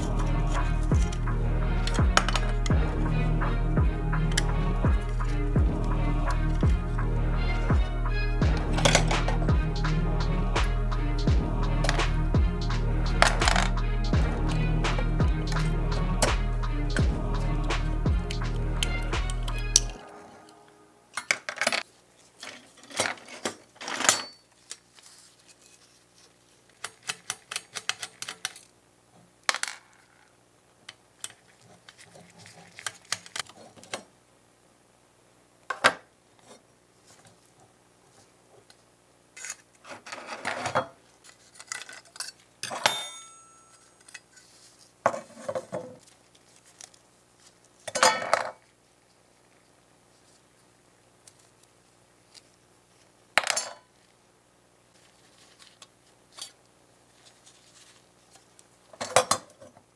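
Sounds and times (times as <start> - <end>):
small model parts clicking: 26.8 - 28.7.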